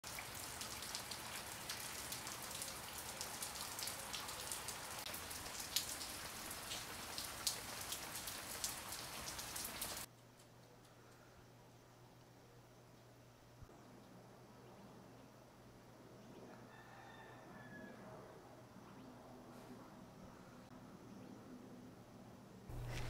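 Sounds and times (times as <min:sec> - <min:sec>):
raindrops ticking close by: 0:00.0 - 0:11.2, 0:22.7 - 0:23.0
steady rain falling: 0:00.0 - 0:14.2, 0:22.7 - 0:23.0.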